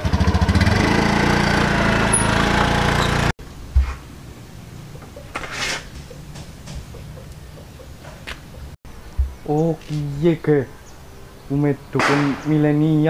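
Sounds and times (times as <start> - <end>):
motorcycle engine running: 0.0 - 3.3.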